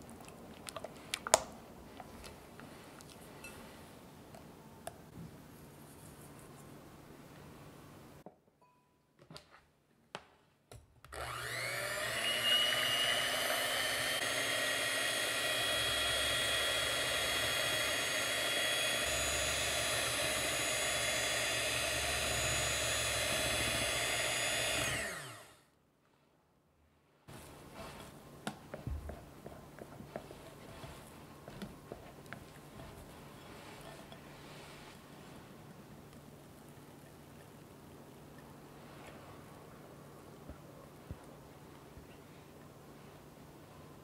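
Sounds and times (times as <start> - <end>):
electric hand mixer whipping: 11.1 - 25.6
spatula working whipped cream: 11.2 - 25.6, 27.3 - 35.1.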